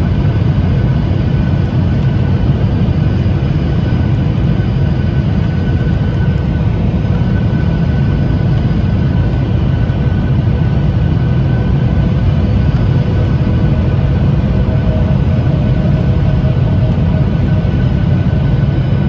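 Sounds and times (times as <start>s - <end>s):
jet engines rumbling: 0.0s - 19.0s.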